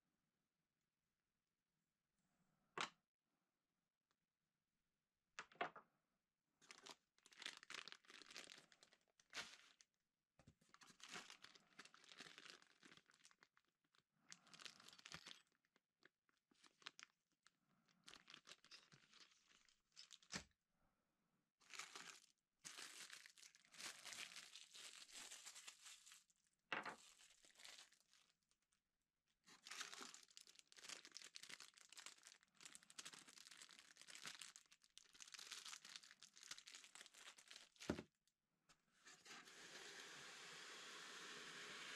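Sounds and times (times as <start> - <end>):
packaging crinkling and rustling: 6.6 - 9.8, 10.6 - 13.5, 18.0 - 20.4, 21.6 - 28.3, 29.5 - 38.1.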